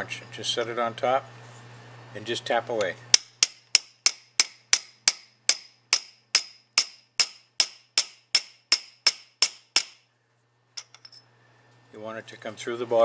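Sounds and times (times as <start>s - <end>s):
hammer tapping on steel punch: 3.1s - 10.0s.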